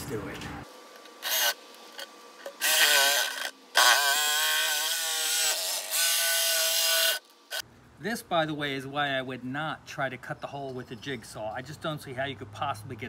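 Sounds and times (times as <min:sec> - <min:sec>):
jigsaw cutting wood: 0:01.2 - 0:01.6, 0:02.5 - 0:07.6.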